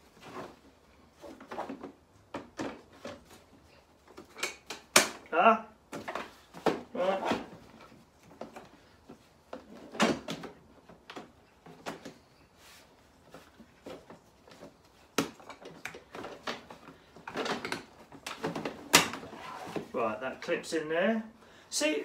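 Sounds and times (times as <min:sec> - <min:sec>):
plastic parts clicking and knocking: 0:04.0 - 0:05.3, 0:13.8 - 0:19.3.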